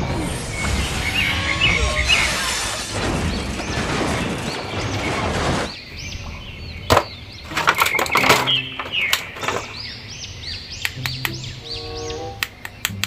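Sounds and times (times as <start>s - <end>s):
explosion and debris rumble: 0.0s - 8.1s.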